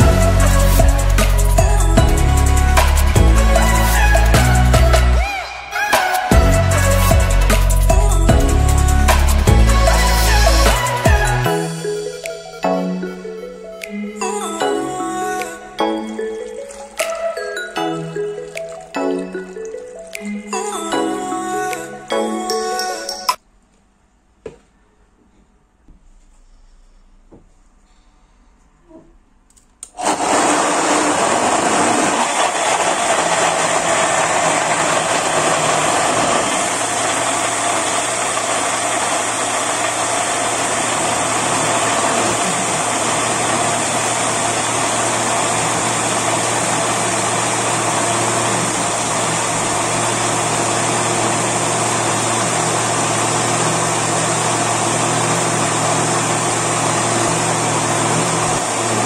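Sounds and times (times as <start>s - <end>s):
blender motor running: 0.0s - 5.5s, 6.3s - 11.8s, 29.9s - 59.0s.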